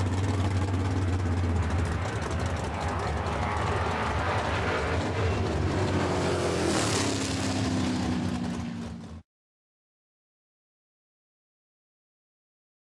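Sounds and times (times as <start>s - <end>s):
drag racing car engines: 0.0s - 9.2s.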